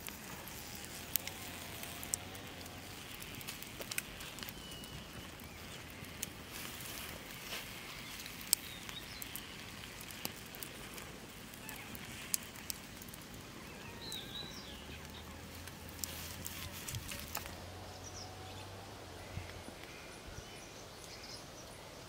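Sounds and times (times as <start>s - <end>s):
campfire crackling and popping: 0.0s - 20.3s
steady outdoor hiss: 0.0s - 22.0s.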